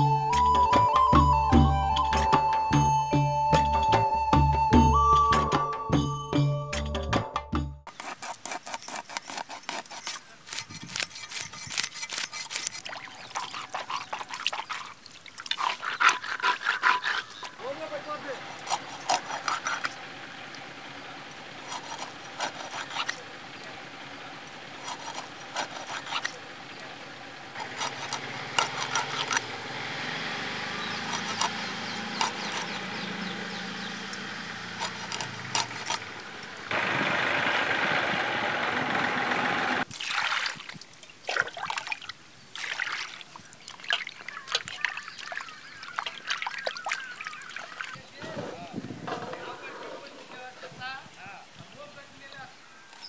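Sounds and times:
fish scraped on cutting blade: 7.9s - 17.6s, 18.4s - 20.0s, 21.6s - 23.3s, 24.8s - 26.5s, 27.6s - 29.5s, 30.9s - 32.9s, 34.7s - 36.1s
water pouring: 12.5s - 17.6s, 39.8s - 48.0s
hands splashing in bowl of water: 39.9s - 48.0s.

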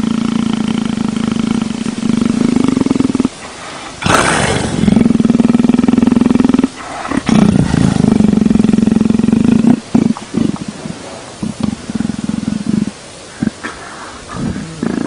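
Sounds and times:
leopard rumbling growl: 0.0s - 15.0s
leopard breathy exhale: 6.8s - 8.2s, 13.3s - 15.0s.

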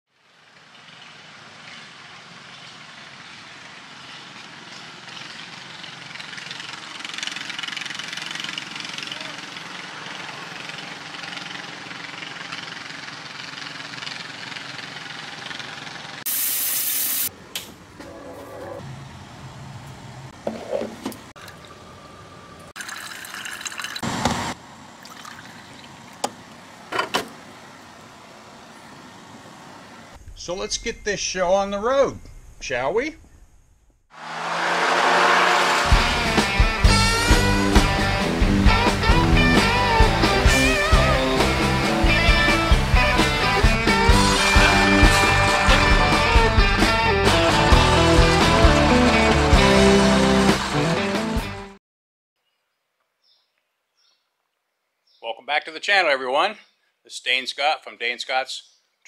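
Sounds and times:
outdoor background noise: 0.1s - 36.8s
engine droning: 0.2s - 16.2s, 17.3s - 22.7s, 34.1s - 51.2s
coffee pouring and splashing: 22.7s - 24.3s, 25.0s - 26.2s.

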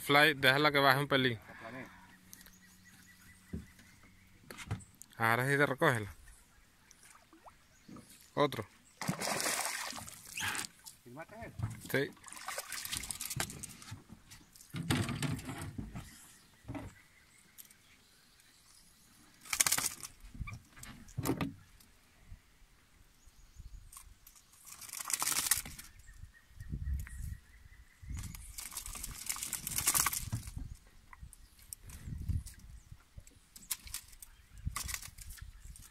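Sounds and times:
fish flapping: 19.4s - 20.2s, 24.6s - 25.9s, 28.2s - 30.6s, 33.7s - 35.4s.

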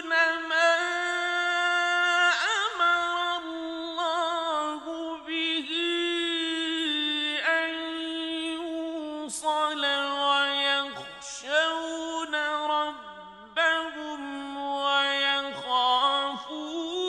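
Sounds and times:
man reciting melodically: 0.0s - 17.0s.

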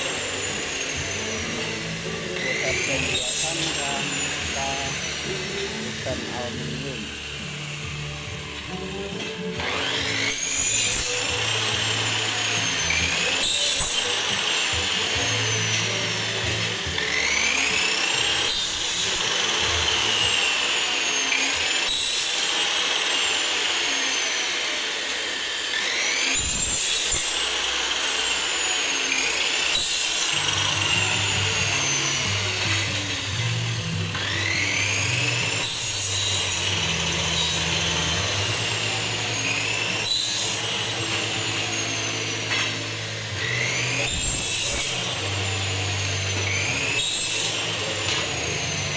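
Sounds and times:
power tool running: 0.0s - 48.9s.

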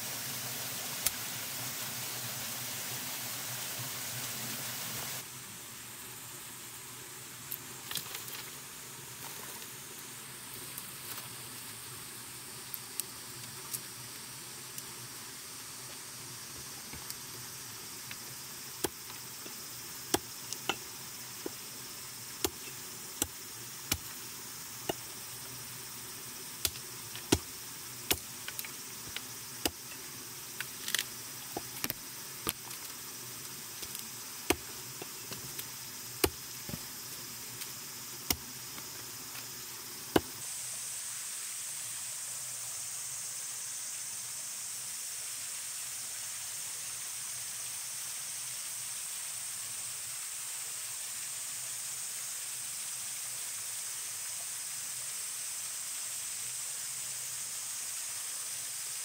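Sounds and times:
small waterfall rushing: 0.0s - 59.0s
steady high hiss: 0.0s - 59.0s
hatchet chopping wood: 18.8s - 19.2s, 20.1s - 21.6s, 22.4s - 24.2s, 24.8s - 25.1s, 26.6s - 29.9s, 33.8s - 35.5s, 36.2s - 36.9s, 38.3s - 38.5s, 40.1s - 40.4s.

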